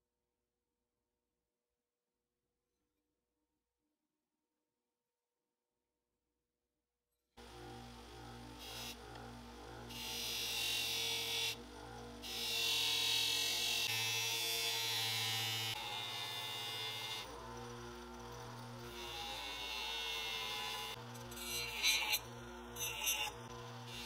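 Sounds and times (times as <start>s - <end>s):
bench grinder motor humming: 7.4s - 24.0s.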